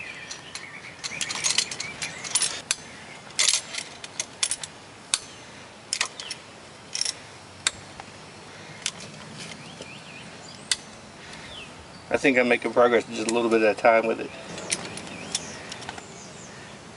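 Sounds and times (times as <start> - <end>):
metallic clicks and clinks: 0.2 - 5.3, 14.4 - 16.0.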